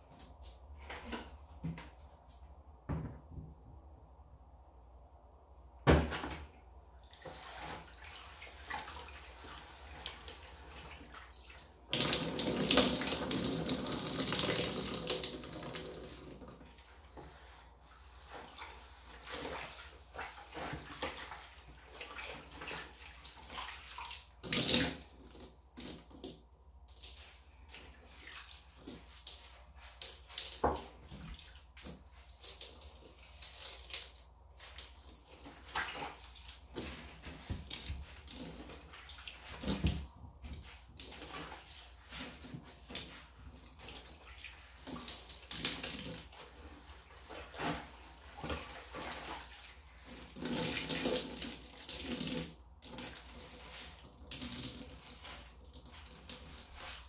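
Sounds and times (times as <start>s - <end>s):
tap water splashing into plastic bin: 5.8s - 6.6s, 30.1s - 34.2s, 39.4s - 41.2s.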